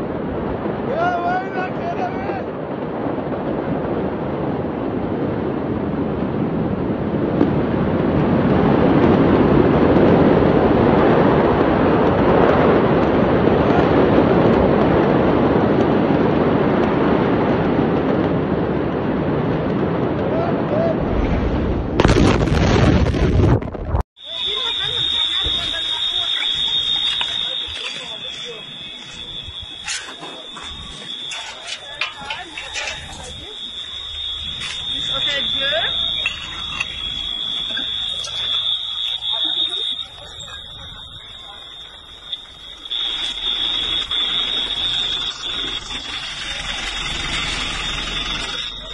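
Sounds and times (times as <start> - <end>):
high-pitched alarm tone: 24.2 - 48.9.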